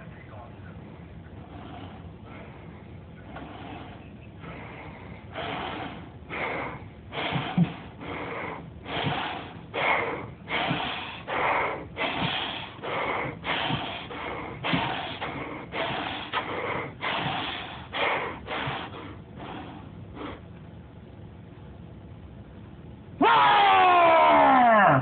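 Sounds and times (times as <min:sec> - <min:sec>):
person breathing heavily in a mask: 0:01.6 - 0:20.5.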